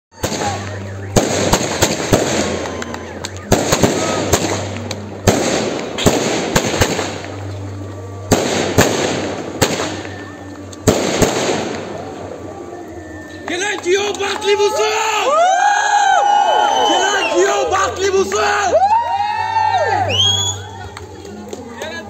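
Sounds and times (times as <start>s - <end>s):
fireworks bangs: 0.2s - 7.6s, 8.3s - 12.6s
fireworks hissing and crackling: 0.2s - 14.9s.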